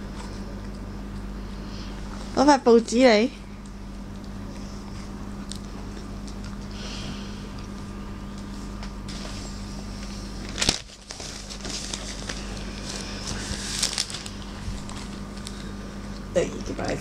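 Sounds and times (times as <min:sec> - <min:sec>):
steady low hum: 0:00.0 - 0:17.0
dog chewing on fruit: 0:04.1 - 0:06.8
newspaper crinkling: 0:10.4 - 0:15.7.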